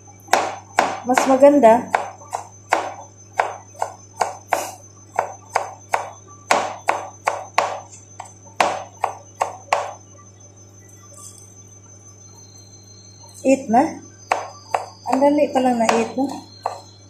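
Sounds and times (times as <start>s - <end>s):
knife chopping on cutting board: 0.3s - 1.3s, 1.9s - 7.8s, 8.6s - 9.9s, 14.3s - 15.2s.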